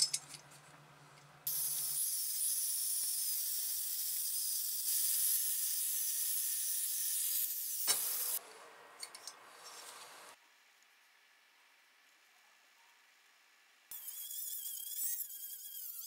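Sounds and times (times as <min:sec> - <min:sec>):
angle grinder cutting metal: 0:01.5 - 0:08.4, 0:13.9 - 0:16.0.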